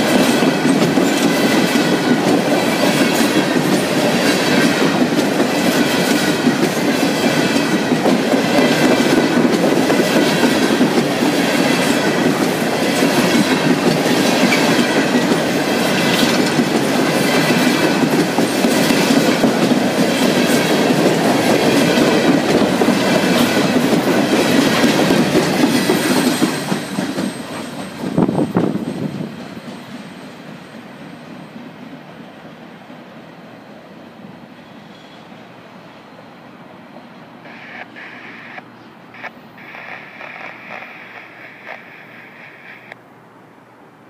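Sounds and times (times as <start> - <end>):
train wheels clacking on rails: 0.0 - 32.4
faint high squeal: 34.6 - 35.5.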